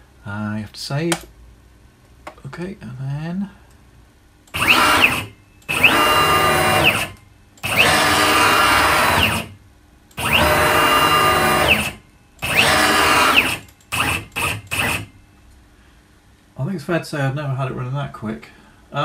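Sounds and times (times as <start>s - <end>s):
stepper motor whine: 4.5s - 9.5s, 10.2s - 15.1s.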